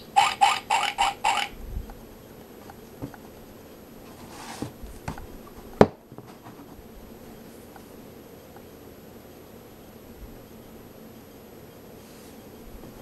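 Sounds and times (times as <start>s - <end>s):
electronic pig oinks: 0.0s - 1.6s.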